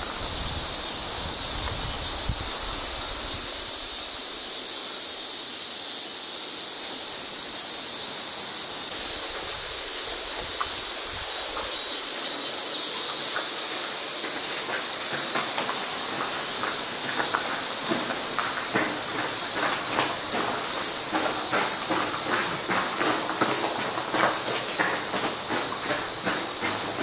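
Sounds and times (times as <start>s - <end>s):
cicadas droning: 0.0s - 27.0s
footsteps on gravel: 8.9s - 27.0s.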